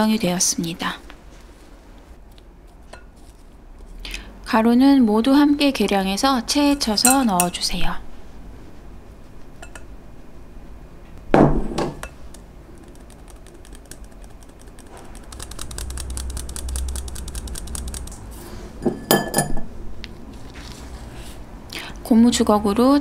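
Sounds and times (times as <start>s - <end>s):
sharp clinks: 6.8s - 7.7s
metal sieve tapping: 6.8s - 7.8s, 9.6s - 9.9s.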